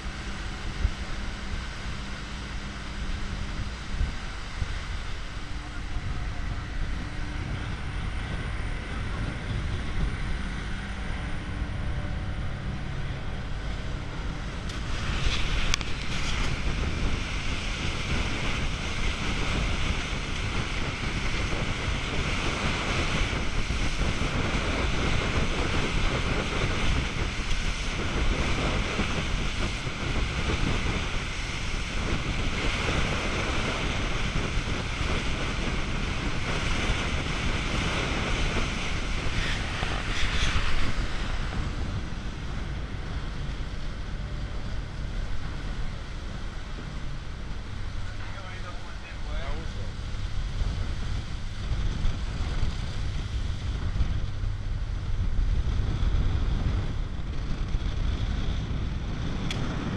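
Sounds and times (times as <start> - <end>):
water rushing along boat hull: 0.0 - 59.9
wind buffeting microphone: 0.0 - 59.9.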